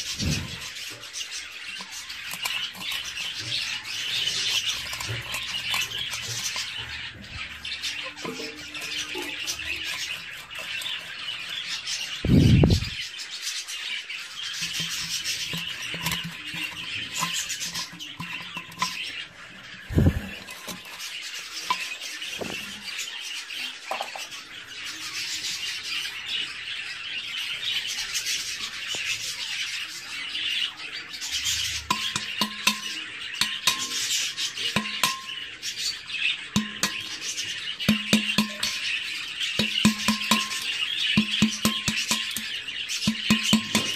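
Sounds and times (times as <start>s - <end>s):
screwdriver grinding into clay pot: 0.0s - 13.0s, 14.5s - 22.8s, 31.6s - 35.3s, 36.6s - 39.0s, 39.6s - 43.9s
budgerigars chirping: 0.0s - 43.9s.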